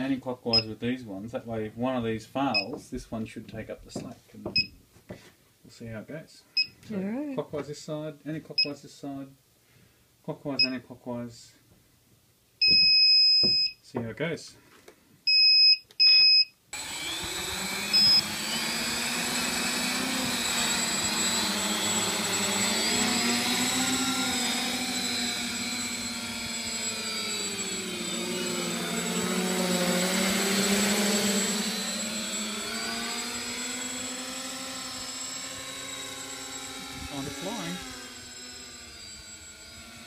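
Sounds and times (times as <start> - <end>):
drone motors humming: 16.8 - 40.0.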